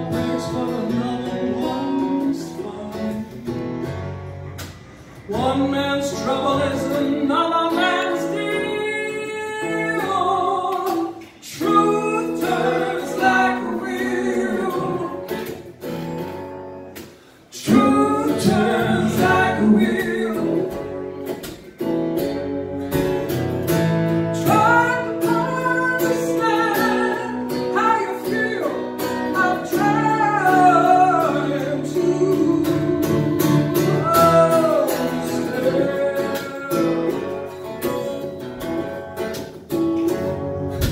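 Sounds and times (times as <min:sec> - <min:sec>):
acoustic guitar strumming: 0:00.0 - 0:40.9
woman singing: 0:05.3 - 0:15.3, 0:24.4 - 0:37.3.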